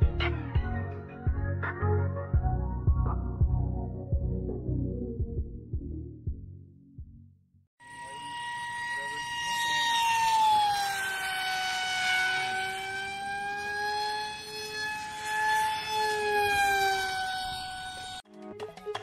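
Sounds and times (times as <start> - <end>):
electric motor and propeller whine: 7.8 - 18.3.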